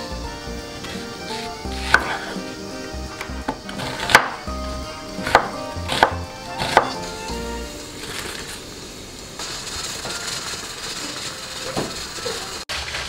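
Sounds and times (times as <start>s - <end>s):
knife chopping onion on wooden board: 1.4s - 2.4s, 3.2s - 4.4s, 5.2s - 7.0s.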